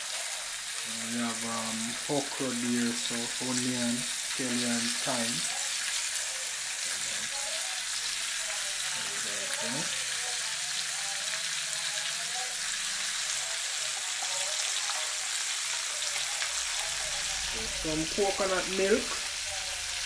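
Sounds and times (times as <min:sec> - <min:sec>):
fish and vegetables sizzling in a pan: 0:00.0 - 0:20.0.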